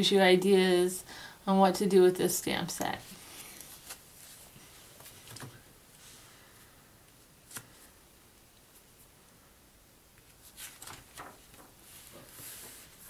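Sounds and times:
paper pages rustling: 3.1 - 5.6, 10.2 - 13.0.

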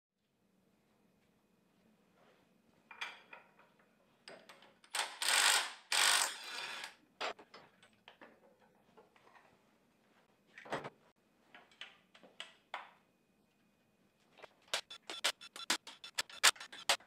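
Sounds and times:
impact wrench: 4.9 - 6.9, 14.7 - 17.0.

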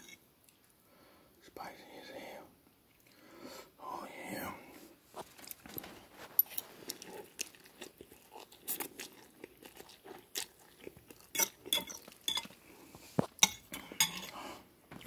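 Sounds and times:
person chewing noodles: 6.4 - 14.5.

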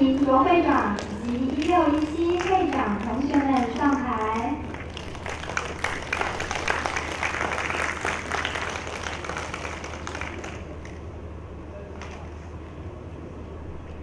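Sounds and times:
audience applauding: 0.1 - 11.0.

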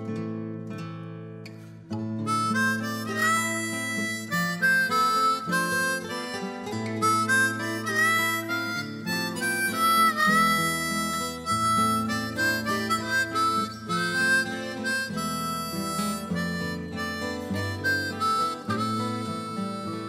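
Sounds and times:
harmonica melody with bends: 2.1 - 20.0.

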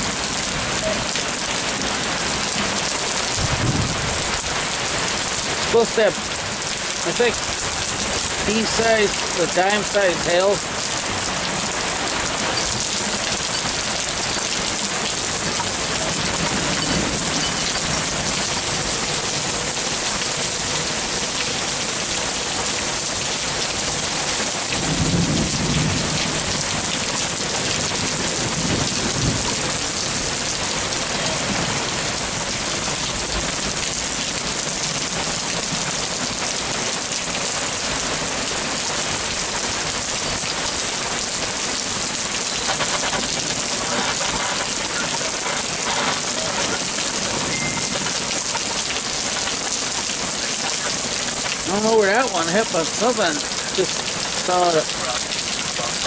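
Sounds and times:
heavy rain with hail: 0.0 - 56.0
thunder rumbling low: 3.3 - 5.6, 24.7 - 33.8.

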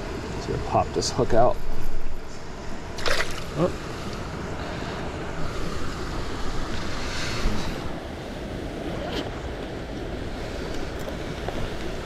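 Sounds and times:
wind rumbling on microphone: 0.0 - 12.0
water swish: 2.5 - 4.0
creek water running over stones: 3.0 - 3.8.

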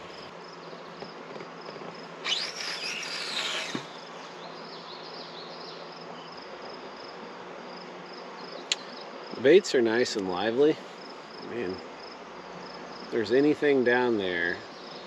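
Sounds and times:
insects buzzing: 0.0 - 15.0
fishing reel spool whirring: 2.2 - 4.1.

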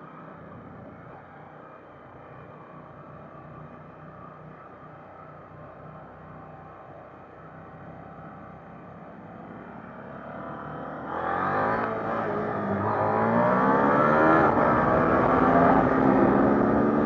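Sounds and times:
motorcycle engine accelerating: 8.1 - 17.0.

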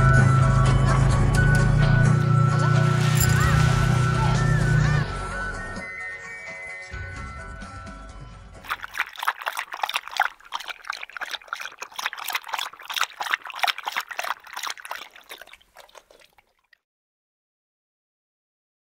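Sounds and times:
dog lapping water from bowl: 8.7 - 16.8.

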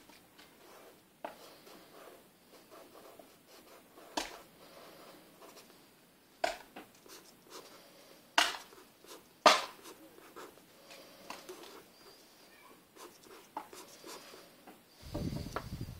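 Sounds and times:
marker scratching on paper: 0.6 - 5.7, 7.0 - 7.8, 8.5 - 10.6, 13.0 - 14.4.

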